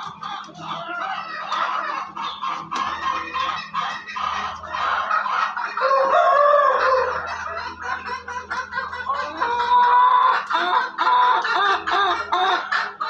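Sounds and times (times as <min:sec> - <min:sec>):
chickens clucking: 0:00.0 - 0:13.0
rooster crowing: 0:05.8 - 0:07.8.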